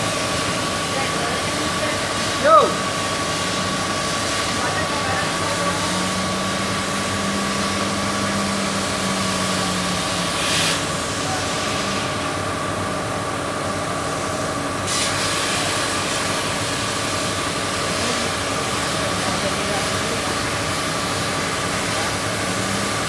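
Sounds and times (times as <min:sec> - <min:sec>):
burst of hiss: 0:00.0 - 0:12.4, 0:14.8 - 0:23.0
laser cutting machine hum: 0:00.0 - 0:23.0.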